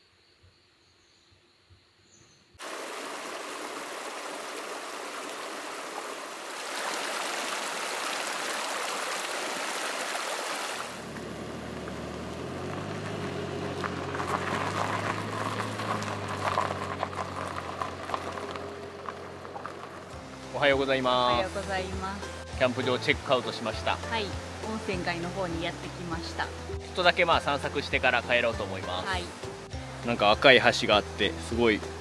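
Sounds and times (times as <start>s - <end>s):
flowing stream: 2.6s - 32.0s
low-pitched background music: 19.7s - 32.0s.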